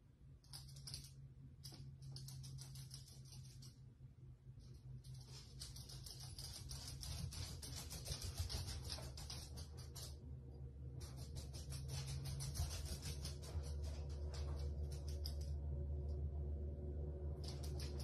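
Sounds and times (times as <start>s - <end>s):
faint low hum: 0.0s - 18.0s
rapid dry scratching: 0.5s - 3.8s, 5.0s - 10.2s, 11.0s - 15.5s.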